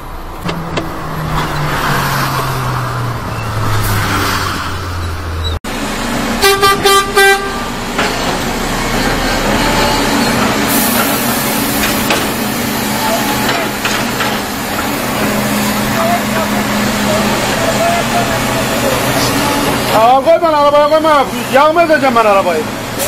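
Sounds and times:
heavy engine running: 0:00.0 - 0:23.0
truck engine slowing: 0:00.0 - 0:23.0
truck horn toots: 0:06.4 - 0:07.8, 0:08.9 - 0:11.0.

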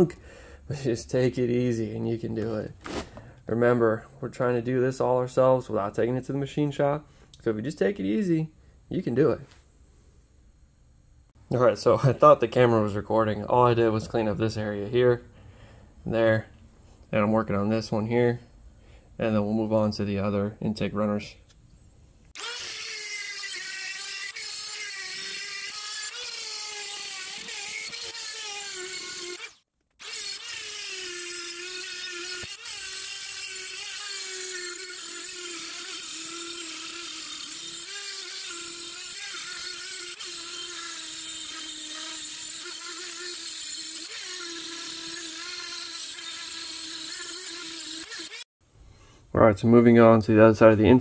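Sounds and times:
rotary tool grinding metal: 0:22.4 - 0:48.5.

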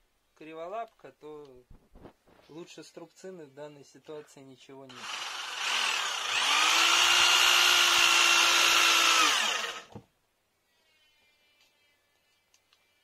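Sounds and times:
power drill driving a screw: 0:04.9 - 0:10.0.

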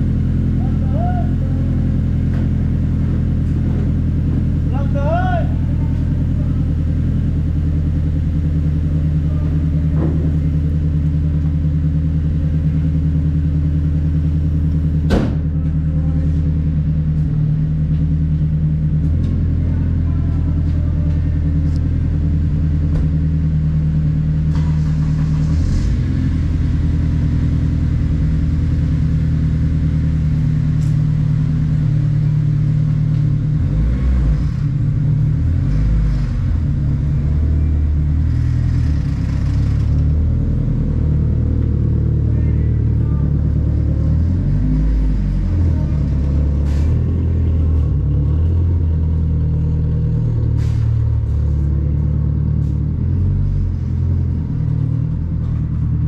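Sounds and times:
car engine idling: 0:00.0 - 0:56.0
sharp knock: 0:15.1 - 0:15.4.

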